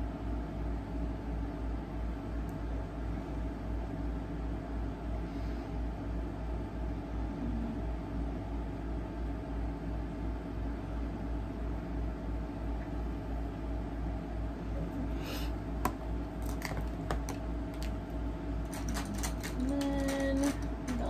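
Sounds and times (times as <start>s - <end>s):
low hum with faint hiss: 0.0s - 21.0s.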